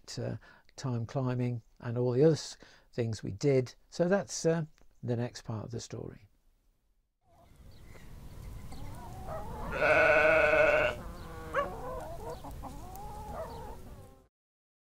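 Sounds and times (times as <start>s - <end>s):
faint animal calls: 8.9s - 13.9s
sheep bleating: 9.7s - 11.7s.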